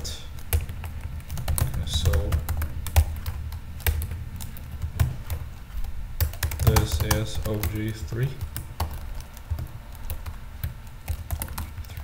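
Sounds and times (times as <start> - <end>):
computer keyboard keys clicking: 0.0 - 5.5, 6.2 - 12.0.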